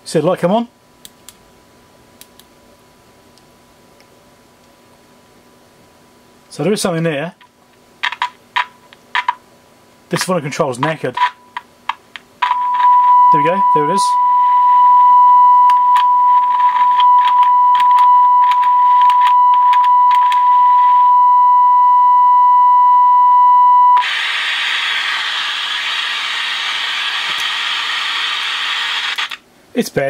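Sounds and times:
loud static hiss: 0.0 - 14.9, 15.7 - 21.1, 24.0 - 30.0
steady test tone from speaker: 12.4 - 24.1
crackles: 15.6 - 21.1.

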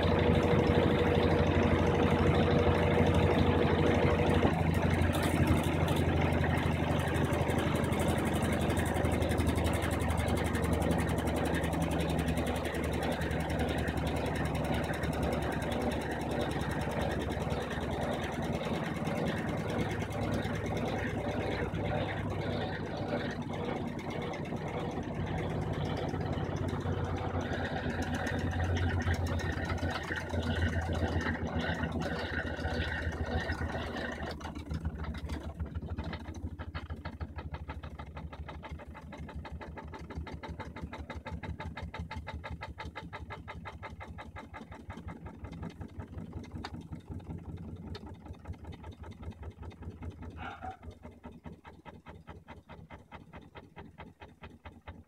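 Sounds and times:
washing machine spinning: 0.0 - 55.0.

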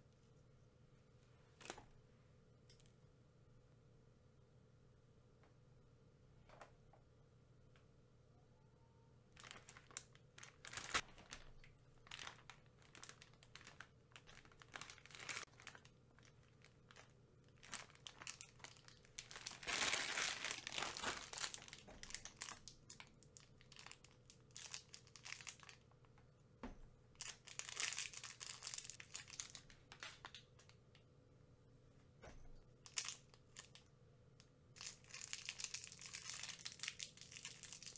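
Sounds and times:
candy wrappers crinkling and tearing: 9.3 - 26.0, 27.2 - 30.8, 32.8 - 33.9, 34.8 - 37.9.

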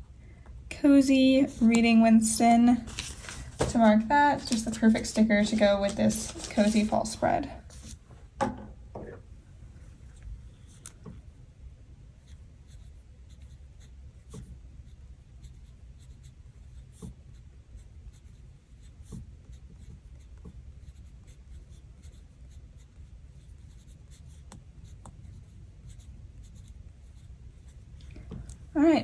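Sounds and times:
paper rubbing and scratching: 2.7 - 3.6, 4.3 - 8.0, 12.2 - 27.9.

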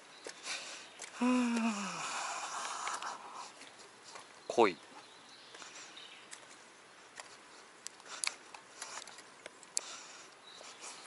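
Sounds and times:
faint footsteps on grass: 0.0 - 11.0
gear clicks and rustles: 1.9 - 11.0.

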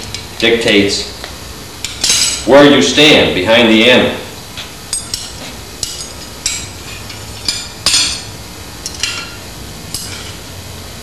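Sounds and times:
metal tongs clinking: 4.9 - 10.4.

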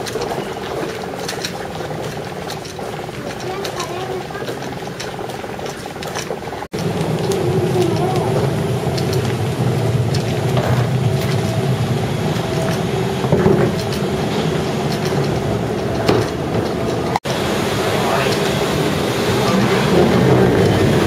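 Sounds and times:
low hum: 4.7 - 21.0
aircraft ground machinery drone: 6.8 - 21.0
faint voices: 7.1 - 9.3, 17.9 - 21.0.

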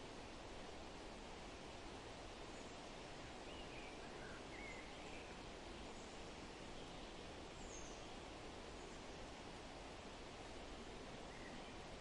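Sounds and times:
outdoor background hiss: 0.0 - 12.0
faint bird chirps: 2.4 - 9.4, 10.7 - 12.0.

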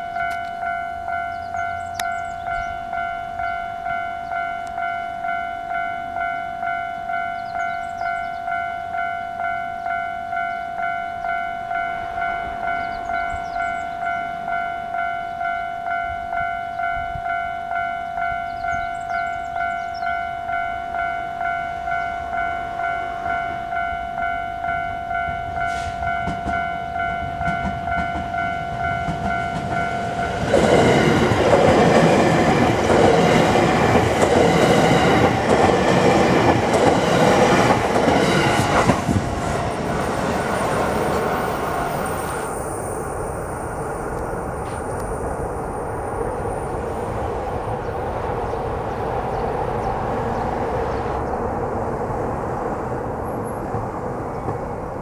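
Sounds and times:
electric train passing: 0.0 - 55.0
train wheel clatter: 25.6 - 42.4.

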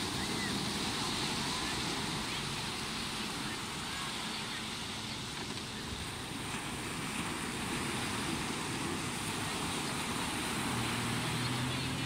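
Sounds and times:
jet ski engines: 0.0 - 12.0
low engine hum: 0.0 - 12.0
surf washing up beach: 0.0 - 12.0.

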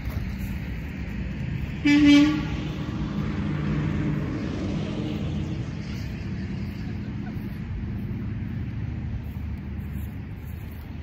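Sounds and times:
loud horn blast: 1.7 - 3.2.

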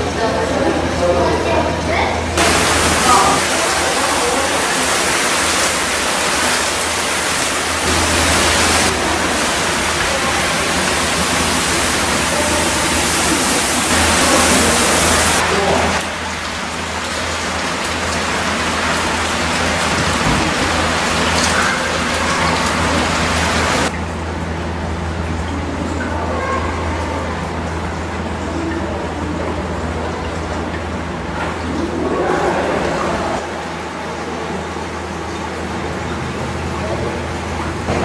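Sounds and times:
water pouring onto foliage: 2.4 - 23.9.

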